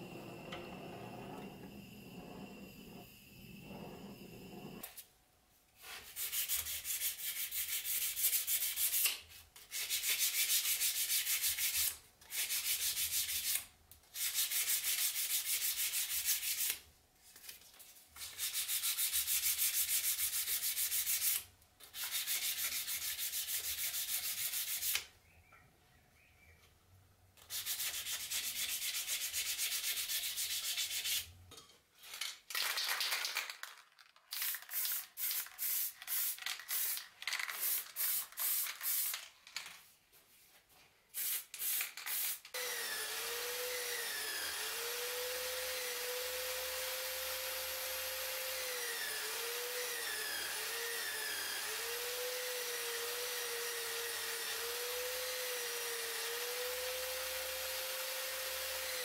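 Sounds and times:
buffing wheel on a drill spinning: 0:00.0 - 0:04.9, 0:42.5 - 0:59.0.

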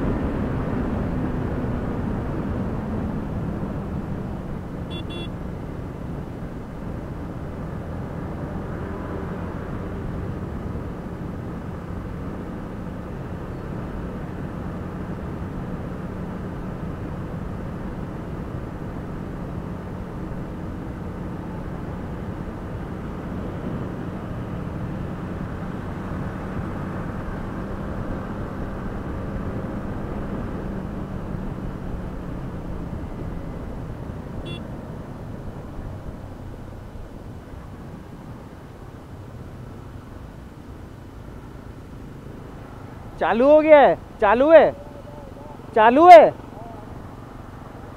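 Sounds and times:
wind and road noise: 0:00.0 - 0:47.9
motorcycle engine running steadily: 0:04.0 - 0:08.0, 0:34.4 - 0:36.1.

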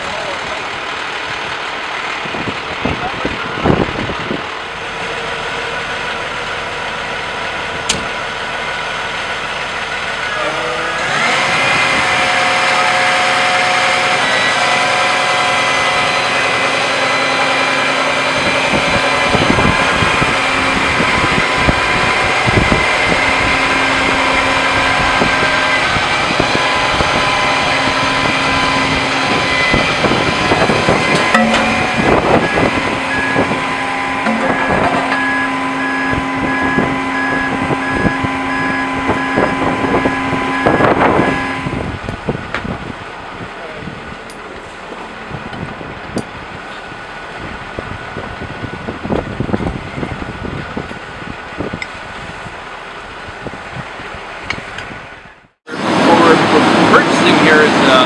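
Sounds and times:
diesel engine running: 0:00.0 - 0:58.0
held tones: 0:31.0 - 0:41.8.

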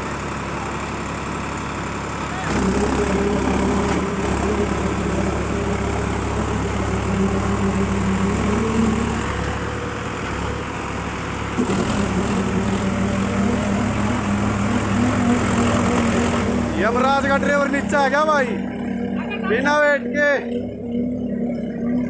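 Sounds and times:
diesel tractor engines under load: 0:00.0 - 0:22.0.

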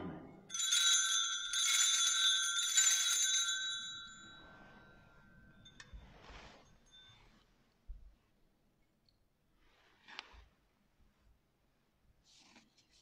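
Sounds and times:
bell ringing: 0:00.5 - 0:07.4.

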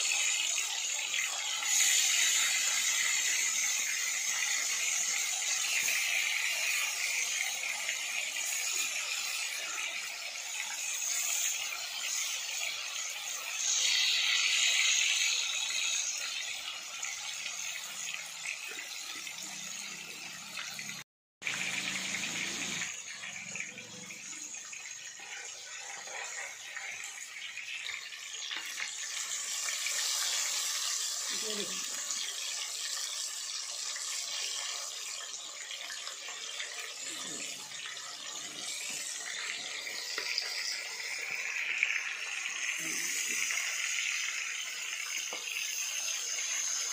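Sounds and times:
fish deep-frying in hot oil: 0:00.0 - 0:46.9.

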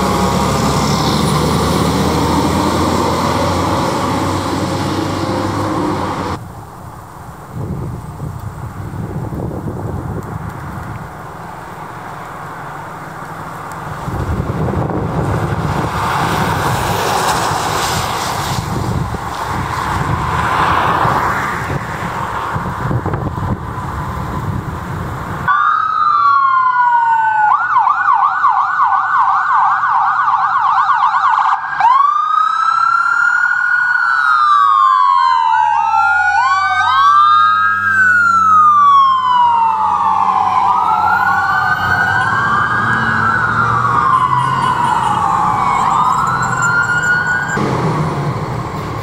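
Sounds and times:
rushing vehicle noise: 0:00.0 - 0:30.0, 0:30.6 - 0:49.0
electronic sirens wailing and yelping: 0:25.5 - 0:47.6.

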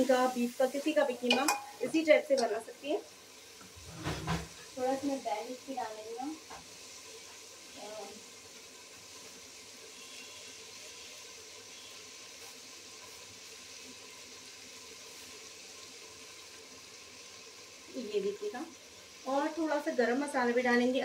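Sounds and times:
food sizzling in a pot: 0:00.0 - 0:21.0.

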